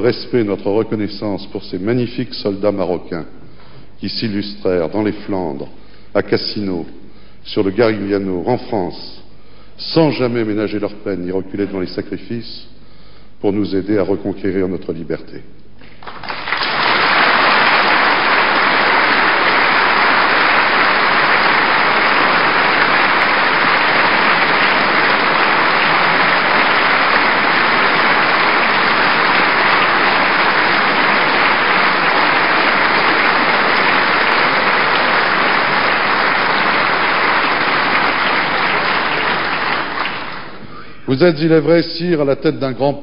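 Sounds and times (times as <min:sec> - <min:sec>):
crowd applauding: 0:16.0 - 0:40.6.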